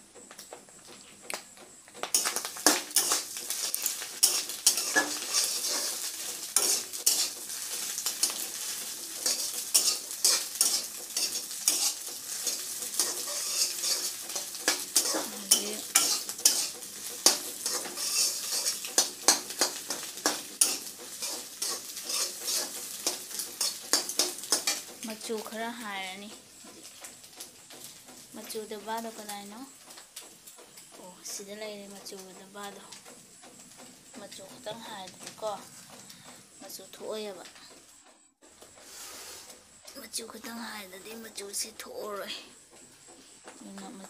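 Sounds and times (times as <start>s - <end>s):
noodles sizzling in pan: 0.0s - 44.0s
metal spatula scraping pan: 2.1s - 25.1s.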